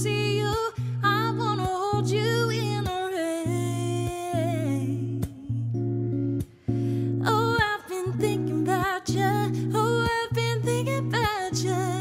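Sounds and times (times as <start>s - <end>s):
woman singing wordless melody: 0.0s - 6.1s, 6.9s - 12.0s
strummed electric guitar: 0.0s - 12.0s.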